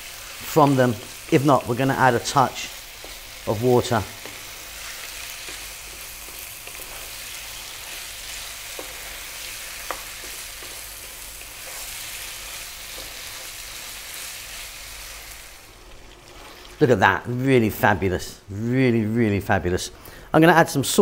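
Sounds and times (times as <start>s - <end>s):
food sizzling in frying pan: 0.0s - 16.9s
wooden spoon tapping and scraping pan: 2.9s - 3.4s, 4.0s - 7.2s, 7.9s - 13.7s.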